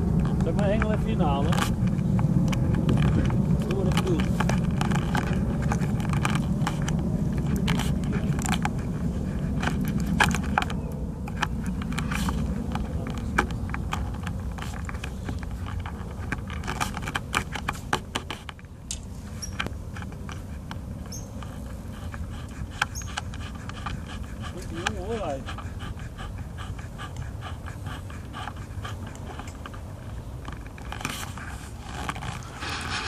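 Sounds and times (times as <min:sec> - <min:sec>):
fishing gear clicking and rattling: 0:00.0 - 0:08.8, 0:09.5 - 0:20.5, 0:29.0 - 0:33.0
low handling rumble: 0:00.0 - 0:17.8.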